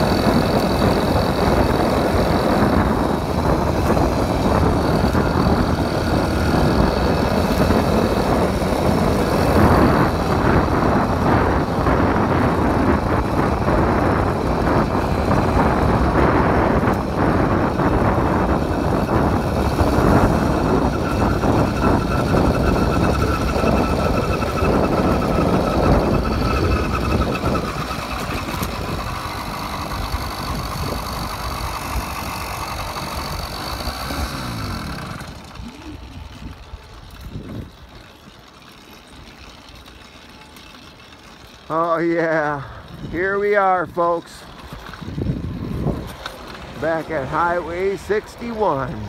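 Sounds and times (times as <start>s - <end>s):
wind rushing over microphone: 0.0s - 38.0s, 41.7s - 49.0s
small motorbike engine running: 0.0s - 49.0s.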